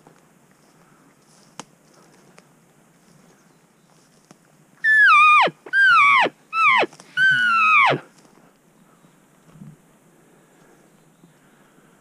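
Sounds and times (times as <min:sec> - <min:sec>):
elk call mews: 0:04.8 - 0:08.1.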